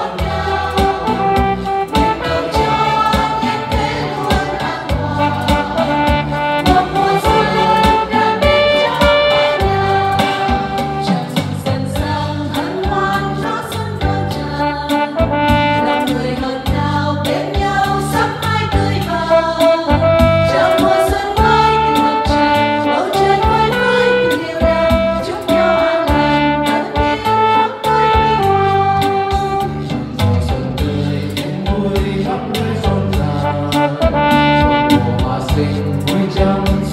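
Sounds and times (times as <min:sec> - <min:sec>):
women's choir singing a hymn: 0:00.0 - 0:11.0, 0:11.8 - 0:14.6, 0:16.0 - 0:19.8, 0:20.5 - 0:25.6
electronic keyboard accompaniment: 0:00.0 - 0:36.9.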